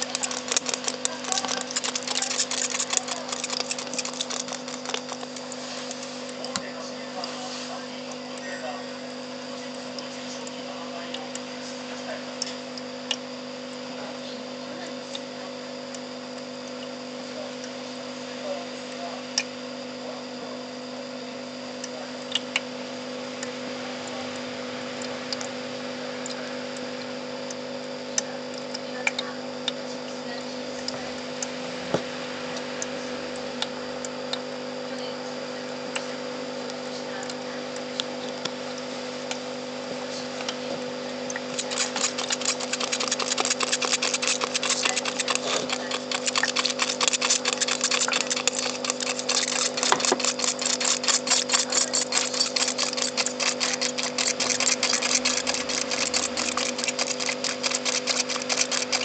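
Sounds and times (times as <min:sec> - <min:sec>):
mechanical ticking rattle: 0:00.0 - 0:06.7, 0:41.3 - 0:59.0
electrical hum: 0:00.0 - 0:59.0.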